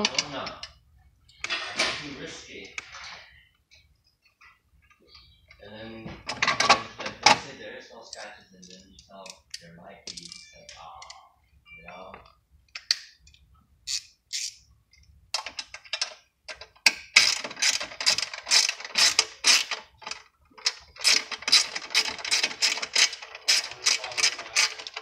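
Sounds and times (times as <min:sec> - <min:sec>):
socket ratchet clicking: 0:12.8 - 0:14.6.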